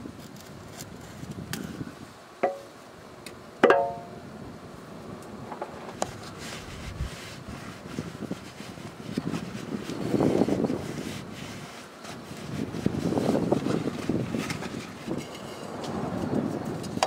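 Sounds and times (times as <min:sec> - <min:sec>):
metal canister clanking: 0:03.6 - 0:04.1.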